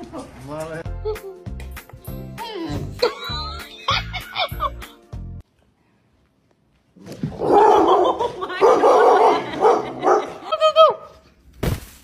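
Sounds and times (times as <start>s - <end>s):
dog barking excitedly: 7.4s - 10.4s.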